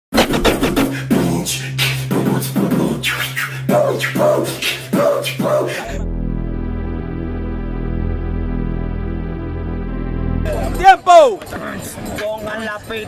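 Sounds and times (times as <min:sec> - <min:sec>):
hip-hop beat: 0:00.1 - 0:11.0
synthesizer music bed: 0:00.1 - 0:11.3
low held tone: 0:01.0 - 0:11.1.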